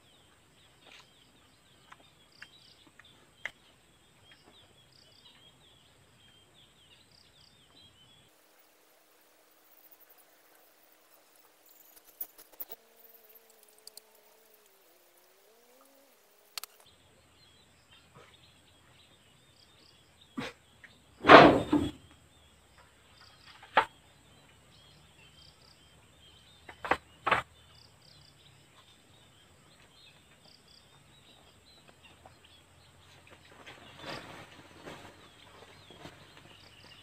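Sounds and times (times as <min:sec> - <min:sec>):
loud thump: 0:21.2 - 0:22.0.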